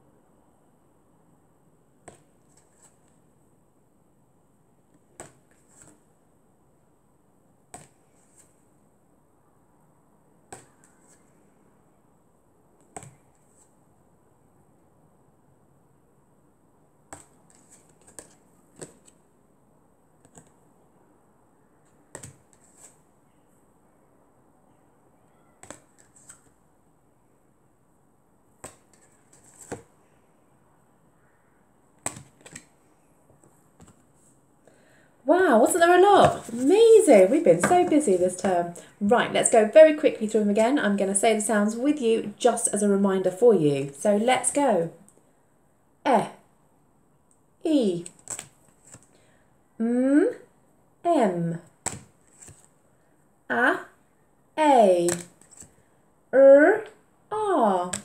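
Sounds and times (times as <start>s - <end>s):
cardboard cards tapping: 10.5s - 11.3s, 17.1s - 19.2s, 20.2s - 20.6s, 22.1s - 23.0s, 25.6s - 26.5s, 28.6s - 29.9s, 32.0s - 32.7s, 51.8s - 52.7s, 55.1s - 55.8s
cards clicking: 32.0s - 32.7s.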